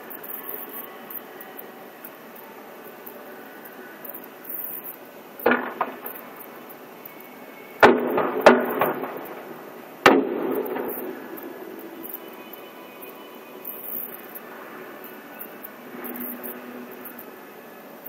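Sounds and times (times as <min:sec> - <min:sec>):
firework shells booming: 0:05.4 - 0:06.6, 0:07.8 - 0:12.0.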